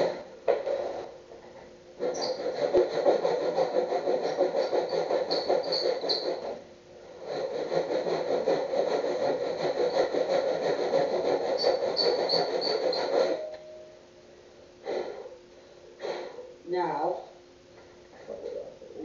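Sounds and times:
high squeak: 0:02.0 - 0:03.0, 0:04.2 - 0:06.6, 0:09.6 - 0:13.7
hand tool scraping wood: 0:02.0 - 0:06.6, 0:07.2 - 0:13.5.

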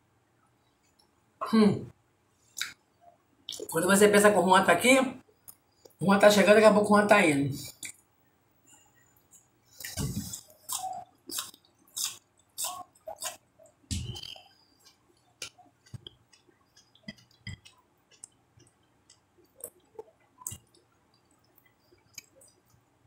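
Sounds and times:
chewing and wet mouth smacking: 0:09.3 - 0:22.8.

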